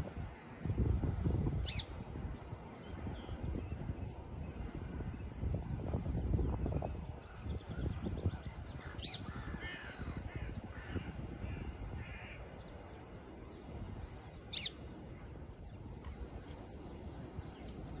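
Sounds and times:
low wind noise: 0:00.0 - 0:18.0
birds chirping: 0:06.8 - 0:16.8.

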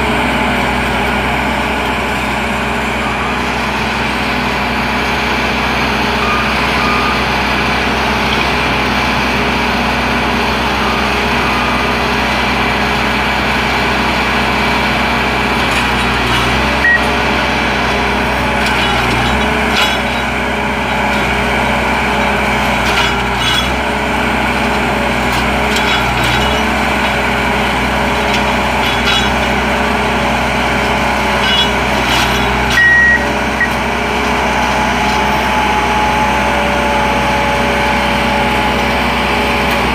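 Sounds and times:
diesel engines running: 0:00.0 - 0:39.9
short high beeps: 0:16.8 - 0:17.1, 0:32.8 - 0:33.8.

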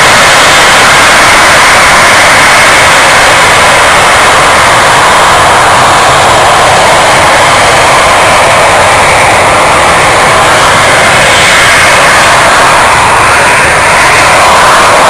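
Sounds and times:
jet engines running: 0:00.0 - 0:15.0.

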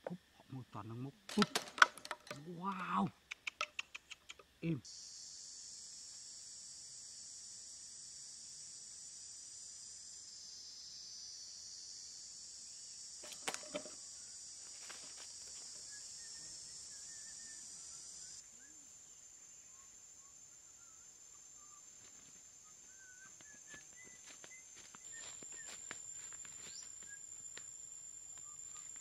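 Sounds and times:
high-pitched insect chorus: 0:00.0 - 0:29.0
trap dropping shut clicks: 0:01.3 - 0:02.4
faint bird chirps: 0:15.7 - 0:27.4, 0:28.3 - 0:29.0.

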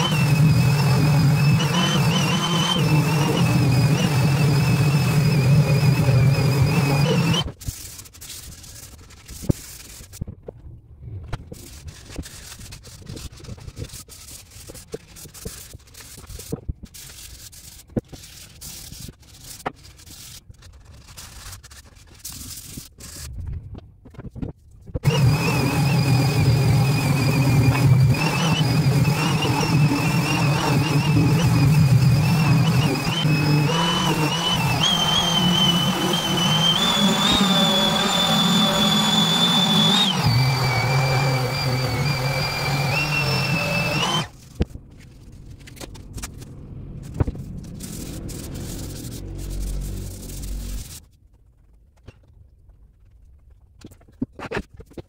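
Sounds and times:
electric sander whining: 0:00.0 - 0:07.5, 0:25.0 - 0:44.4.

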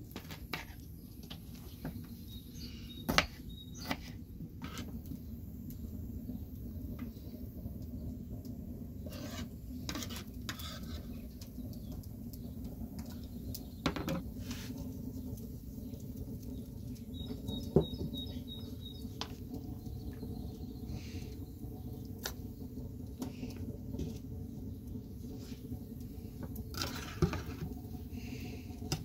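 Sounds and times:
low background rumble: 0:00.0 - 0:29.0
bird chirping: 0:01.0 - 0:04.1, 0:15.1 - 0:22.1.

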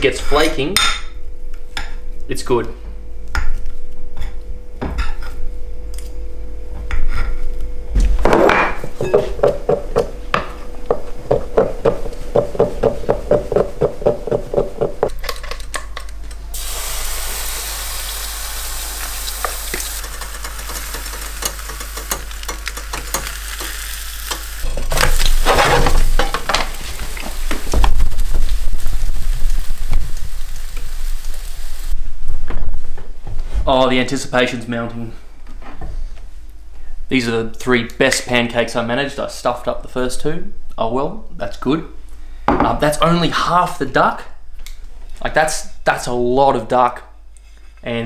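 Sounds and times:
batter sizzling in frying pan: 0:16.6 - 0:32.0.

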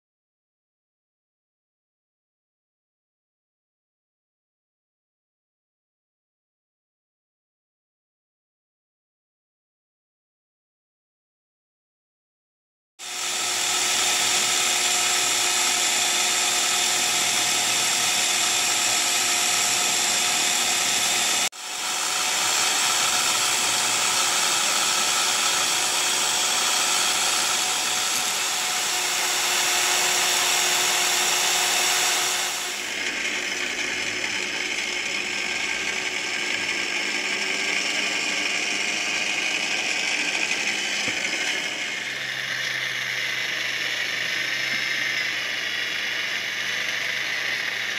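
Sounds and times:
drill press drilling plastic cap: 0:13.0 - 0:47.9
drill press motor whine: 0:13.0 - 0:47.9
file against spinning piece: 0:13.0 - 0:47.9.

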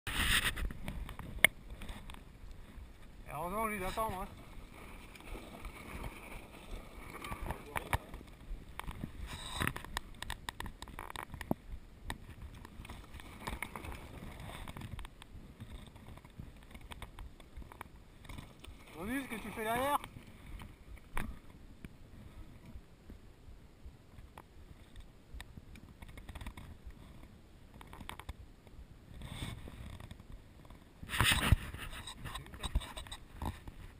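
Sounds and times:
bike tyres crunching over stones: 0:00.1 - 0:20.4
low wind rumble on microphone: 0:00.1 - 0:33.9
small clicks and ticks: 0:00.4 - 0:03.2, 0:05.0 - 0:22.0, 0:24.1 - 0:33.9
bike clicks and rattles: 0:07.0 - 0:18.6, 0:25.8 - 0:26.8.

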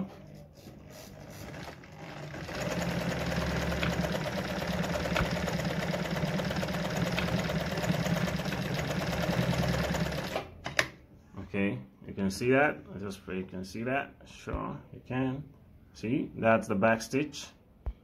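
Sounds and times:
sewing machine stitching: 0:00.0 - 0:10.7.

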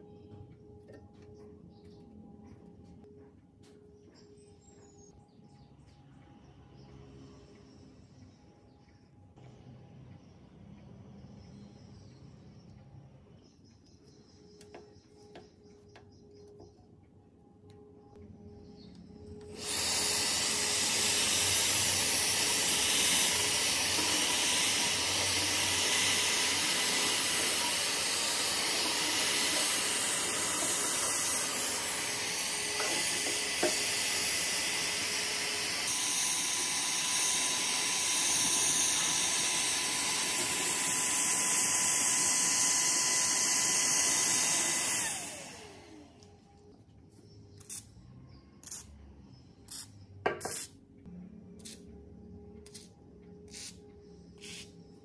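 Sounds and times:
vacuum cleaner whine: 0:18.7 - 0:46.7.

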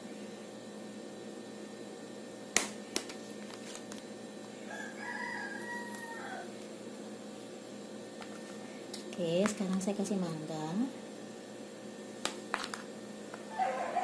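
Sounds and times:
pitched animal call: 0:13.5 - 0:14.0.

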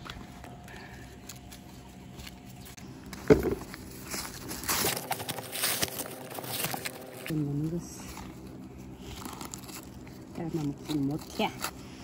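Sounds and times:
corn husks rustling and tearing: 0:00.0 - 0:12.0
thump: 0:03.3 - 0:03.6.

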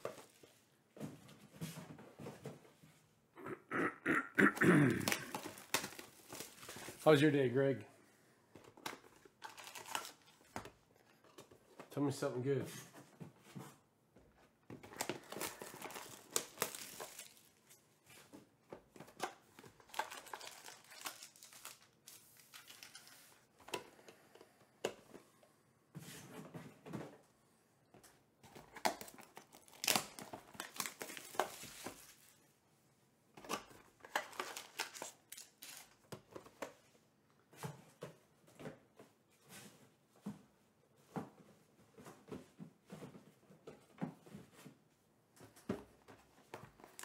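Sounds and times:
wrappers tearing and crinkling: 0:05.0 - 0:07.2, 0:09.2 - 0:10.5, 0:14.9 - 0:17.8, 0:19.7 - 0:23.2, 0:28.8 - 0:32.4, 0:34.0 - 0:36.1
cards being handled: 0:14.8 - 0:23.4.

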